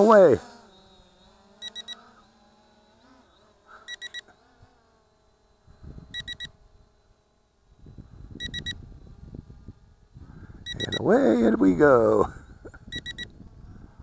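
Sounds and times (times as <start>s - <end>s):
remote controller beeping: 1.6s - 2.0s, 3.9s - 4.3s, 6.1s - 6.5s, 8.4s - 8.8s, 10.7s - 11.1s, 12.9s - 13.3s.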